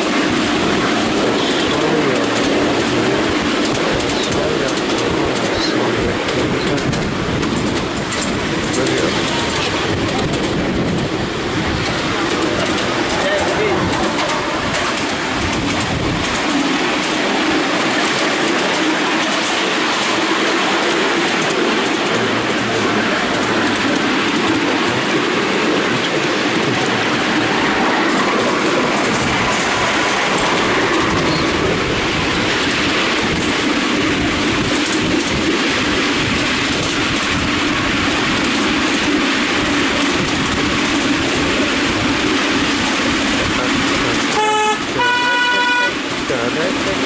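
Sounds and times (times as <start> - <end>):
miniature train running on track: 0.0 - 47.0
two-note train horn: 44.3 - 46.0.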